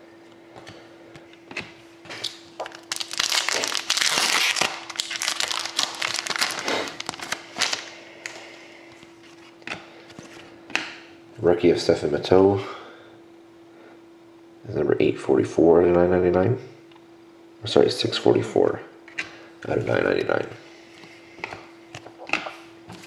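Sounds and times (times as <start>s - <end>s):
foil wrapper tearing and crinkling: 2.2s - 7.9s.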